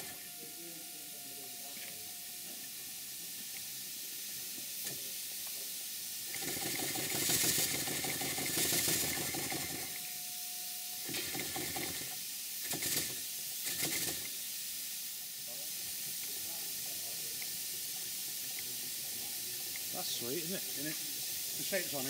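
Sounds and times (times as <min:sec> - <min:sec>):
air hissing: 0:00.0 - 0:22.0
model engine exhaust beats: 0:06.3 - 0:10.2.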